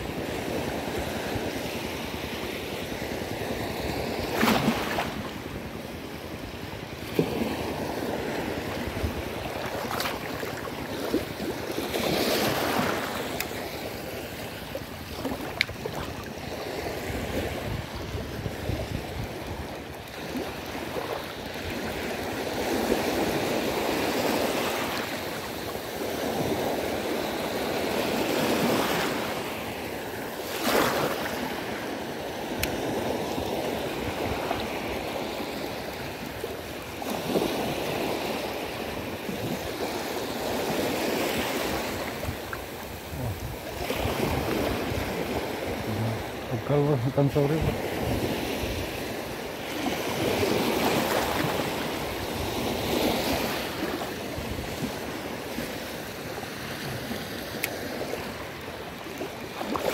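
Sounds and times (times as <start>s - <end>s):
small waves breaking: 0.0s - 59.9s
wind on microphone: 7.2s - 11.6s, 15.0s - 24.3s, 39.2s - 49.3s.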